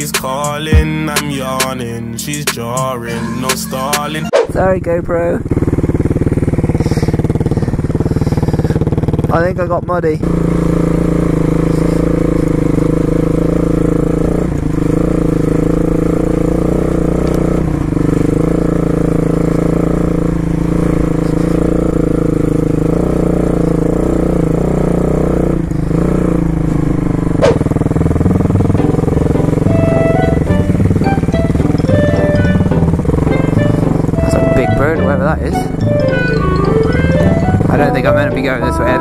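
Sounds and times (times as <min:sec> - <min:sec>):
dirt bike engine running: 0:00.0 - 0:39.0
sharp knock: 0:27.4 - 0:27.6.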